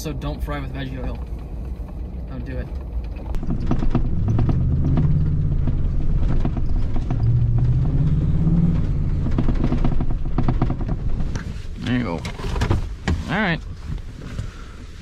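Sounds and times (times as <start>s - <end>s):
truck knocks and rattles: 1.1s - 13.4s
truck engine revving: 3.4s - 11.2s.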